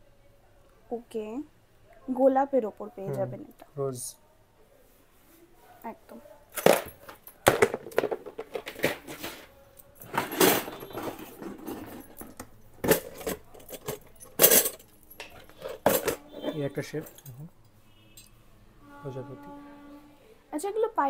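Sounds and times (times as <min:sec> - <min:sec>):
metal charms jingling: 0:09.8 - 0:17.4.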